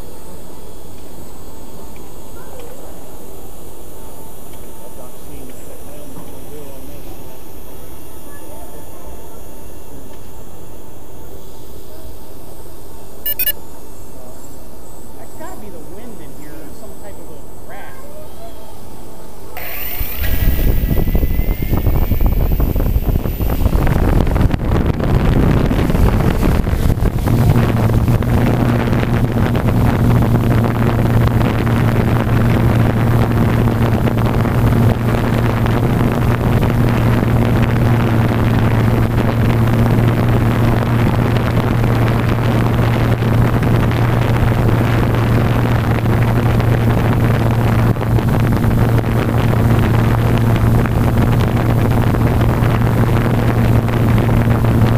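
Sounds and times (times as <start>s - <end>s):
quadcopter motors humming: 0.0s - 54.9s
prop wash rushing on microphone: 19.6s - 54.9s.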